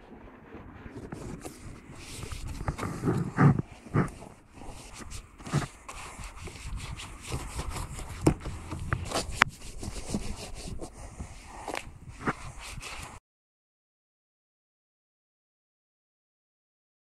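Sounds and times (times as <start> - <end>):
wash mitt rubbing on plastic: 0.8 - 13.2.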